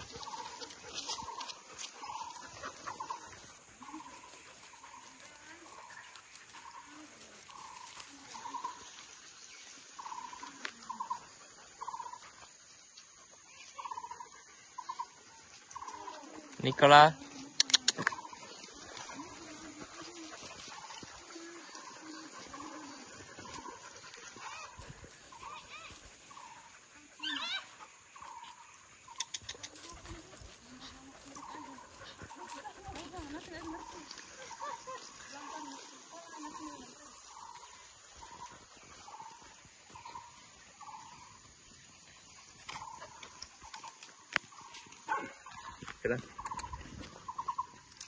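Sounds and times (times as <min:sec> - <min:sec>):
birds chirping: 0:00.0 - 0:48.0
faint outdoor hiss: 0:00.0 - 0:48.0.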